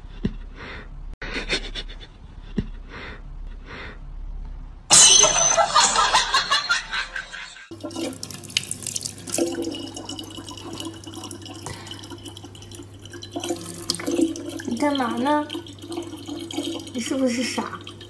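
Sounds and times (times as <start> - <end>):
faucet water into plastic bottle: 7.7 - 18.0.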